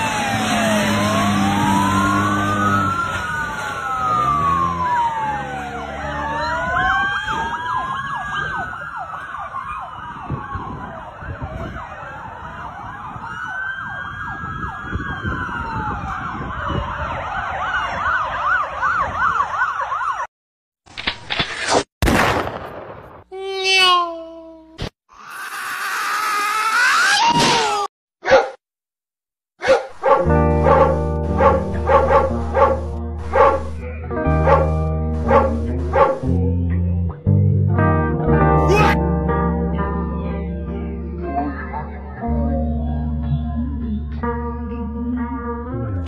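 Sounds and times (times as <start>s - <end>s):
police sirens wailing and yelping: 0.0s - 20.3s, 30.2s - 36.4s.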